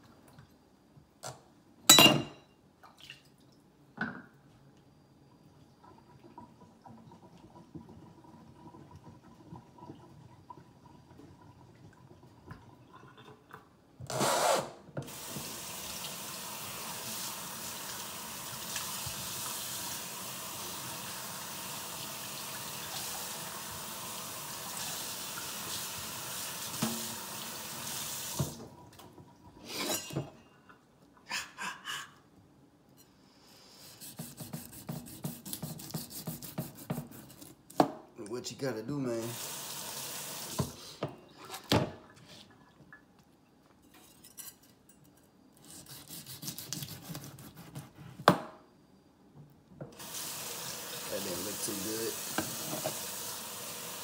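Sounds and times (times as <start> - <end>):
faucet water running into sink: 15.1 - 28.8, 39.2 - 40.8, 50.0 - 54.0
knife cutting fish: 34.0 - 37.6, 45.6 - 48.3.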